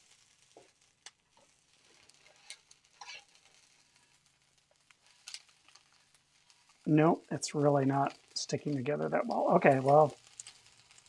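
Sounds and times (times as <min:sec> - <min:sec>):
faint sizzle: 0:00.0 - 0:11.0
spatula clicking and scraping pan: 0:00.5 - 0:06.8, 0:09.8 - 0:11.0.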